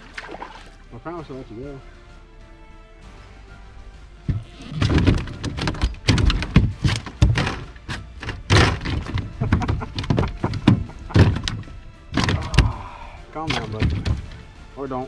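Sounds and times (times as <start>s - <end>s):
knocks and thumps on kayak: 4.3s - 12.8s, 13.5s - 14.4s.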